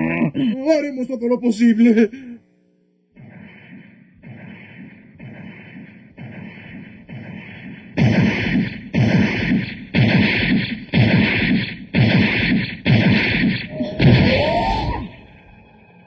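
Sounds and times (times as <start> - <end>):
giant robot footsteps with hiss: 3.2 - 13.8.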